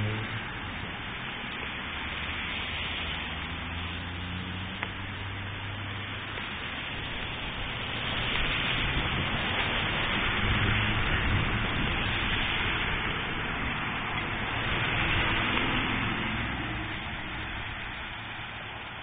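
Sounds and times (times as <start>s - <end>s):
cars passing on wet road: 0.0s - 19.0s
hail pelting pavement: 4.8s - 18.8s.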